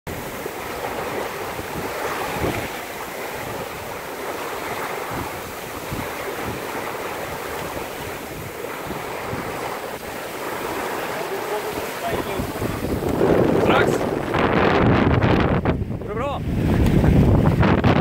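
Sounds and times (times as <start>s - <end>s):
water rushing along a hull: 0.0s - 18.0s
wind buffeting microphone: 0.1s - 18.0s.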